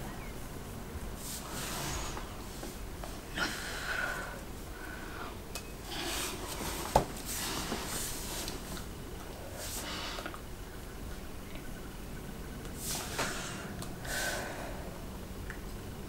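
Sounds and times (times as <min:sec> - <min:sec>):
woman breathing through cigarette: 0:12.8 - 0:15.0.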